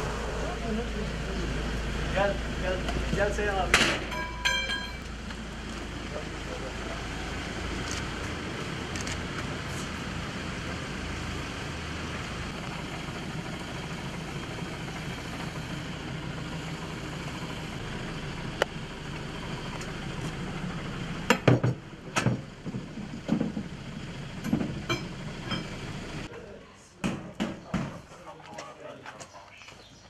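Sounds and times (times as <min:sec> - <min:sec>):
vehicle engine idling: 0:00.0 - 0:26.3.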